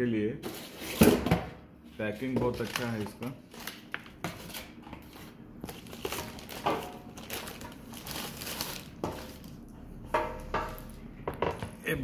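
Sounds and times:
plastic bag crinkling: 2.5s - 3.9s, 5.6s - 9.6s.

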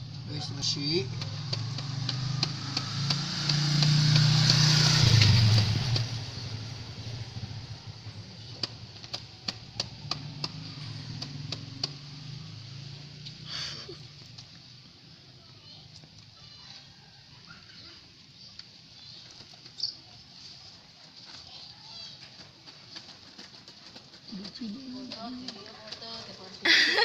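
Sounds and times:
motorcycle engine passing by: 0.0s - 27.0s
plant pots clicking: 22.2s - 26.6s.

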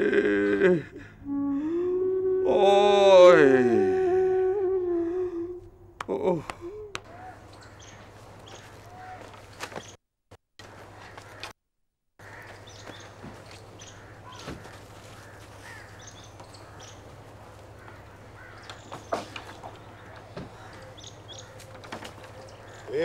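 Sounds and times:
small birds chirping: 6.1s - 10.0s, 12.2s - 23.0s
crows cawing: 7.0s - 9.8s, 10.6s - 11.5s, 12.2s - 23.0s.

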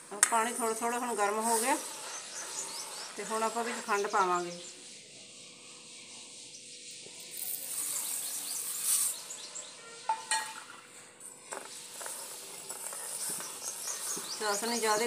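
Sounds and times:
sugar pouring hiss: 0.0s - 4.2s, 7.2s - 9.8s, 10.4s - 15.0s.

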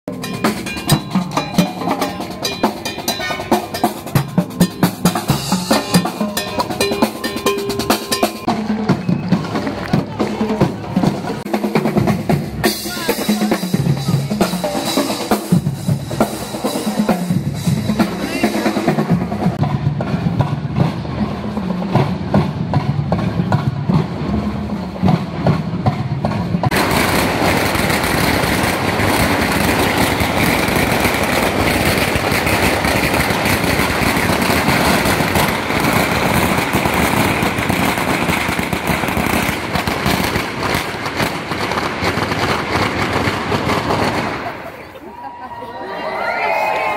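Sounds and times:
firecrackers crackling: 0.1s - 19.6s, 25.0s - 45.3s
fast street drumming: 0.1s - 45.1s.

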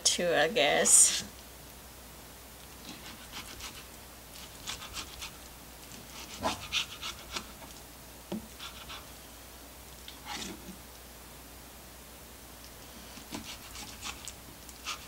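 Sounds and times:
knife sawing through steak: 2.8s - 5.4s, 6.1s - 7.6s, 8.6s - 9.1s, 13.1s - 15.0s.

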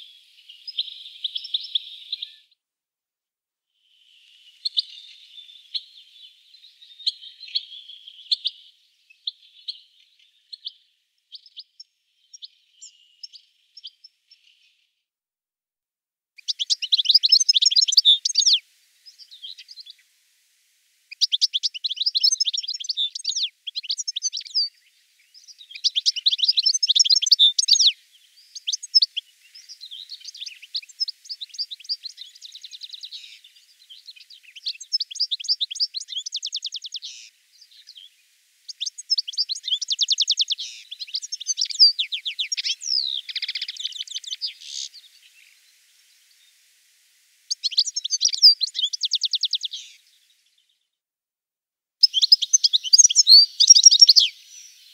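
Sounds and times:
goldfinch twittering and trills: 16.4s - 20.0s, 21.1s - 46.5s, 47.5s - 50.3s, 52.0s - 54.9s.

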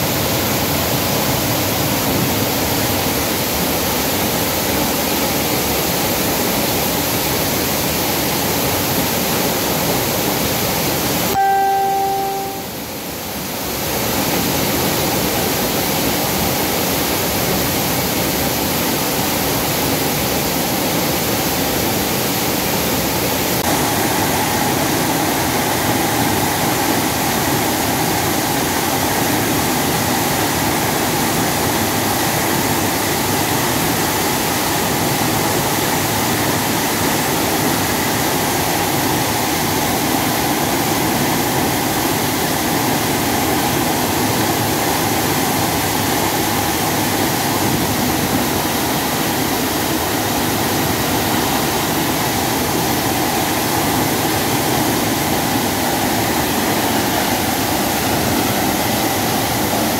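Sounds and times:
waterfall crashing onto rocks: 14.8s - 59.9s.

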